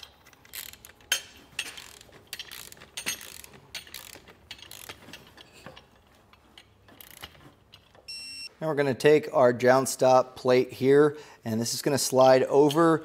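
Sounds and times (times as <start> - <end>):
torque wrench ratchet clicking: 0.0 - 5.0.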